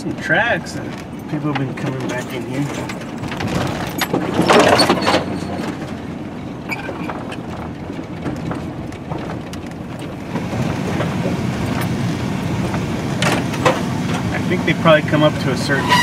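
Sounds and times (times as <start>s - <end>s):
vehicle engine and tyre rumble: 0.0s - 16.0s
small knocks and rattles: 0.8s - 12.0s.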